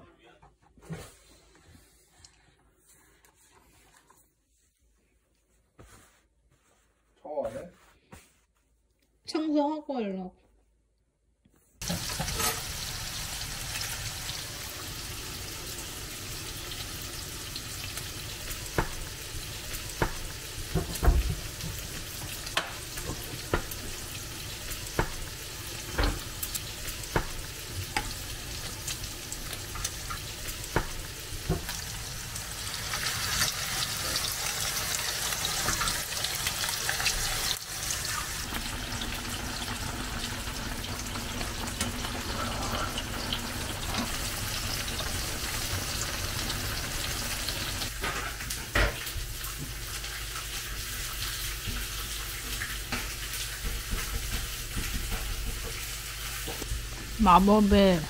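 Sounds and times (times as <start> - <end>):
food cooking hiss: 11.8 - 58.0.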